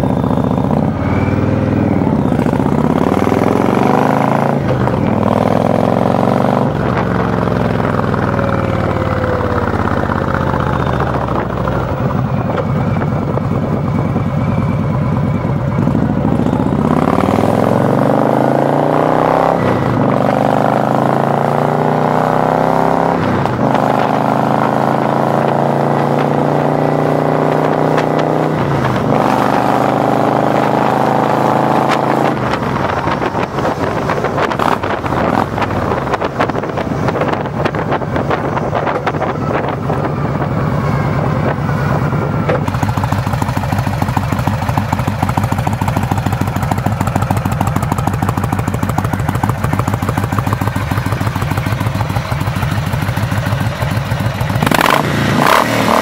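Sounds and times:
motorcycle engine accelerating: 0.0 - 56.0
wind buffeting microphone: 23.1 - 44.7.

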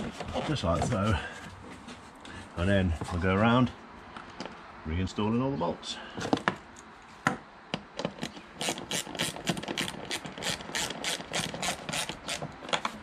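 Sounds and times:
hand ratchet clicking: 8.6 - 13.0.

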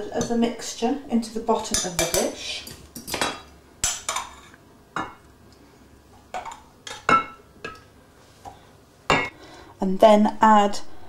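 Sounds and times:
utensil clinking against a bowl: 1.6 - 5.2.

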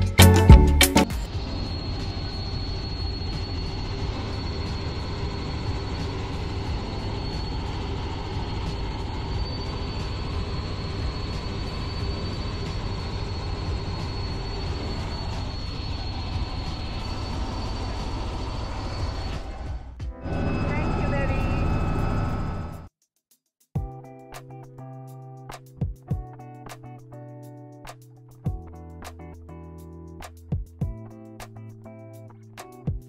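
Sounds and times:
thin high whine: 0.0 - 22.9
helicopter engine and rotor rumble: 1.3 - 22.9.

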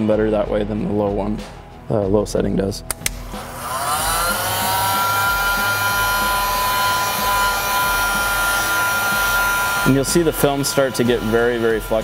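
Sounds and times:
heat gun fan whine: 2.9 - 12.0
rush of blowing air: 3.1 - 11.8.

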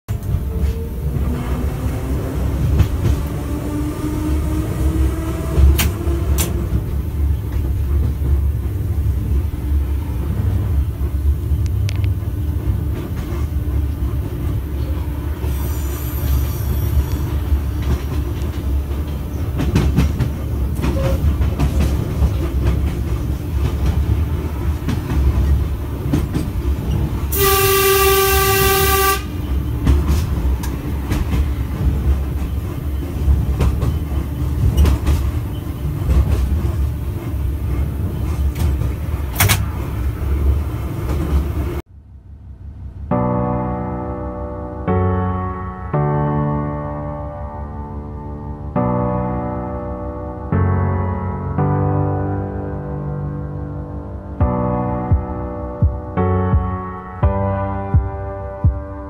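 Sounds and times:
train rumble: 0.1 - 45.4, 53.4 - 59.0
rail-joint clicks: 5.5 - 8.8, 11.6 - 27.4, 29.3 - 41.7
train horn blast: 27.3 - 29.7.

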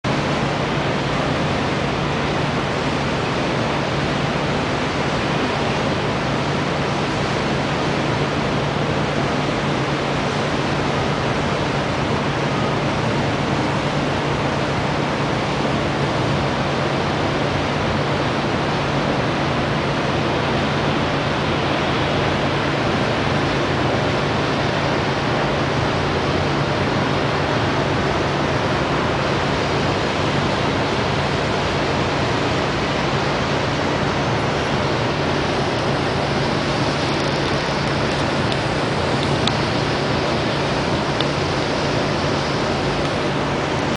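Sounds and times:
constant low hum: 0.0 - 43.9.

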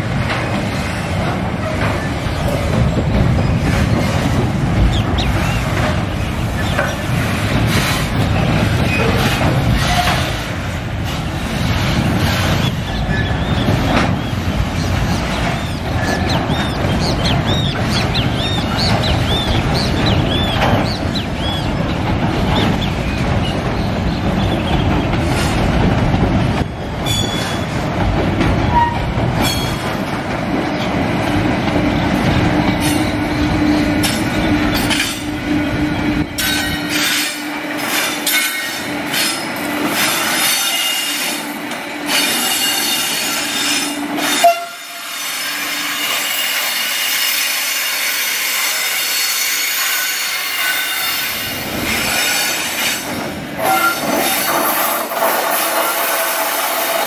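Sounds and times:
high wheel squeal: 42.1 - 53.0, 53.6 - 56.7.

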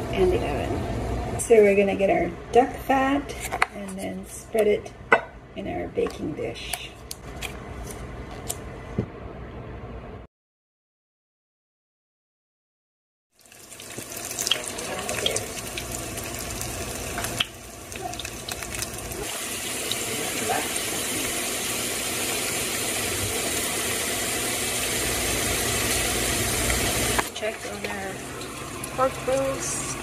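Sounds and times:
dishes clinking: 5.1 - 5.4
tap water running into sink: 13.5 - 30.0.

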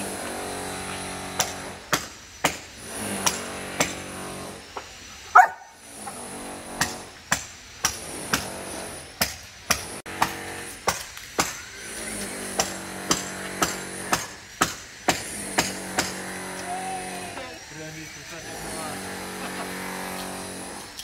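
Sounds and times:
hammer blows on a roof: 0.0 - 4.9, 5.8 - 17.3.

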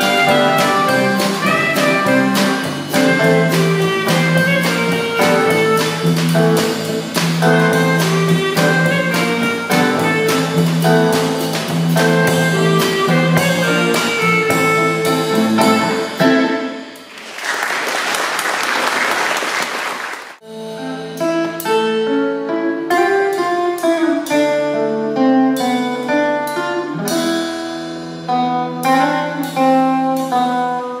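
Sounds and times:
guitar and bass music: 0.0 - 17.0, 20.4 - 31.0
klezmer band playing: 0.0 - 31.0
audience applauding: 17.0 - 20.4.

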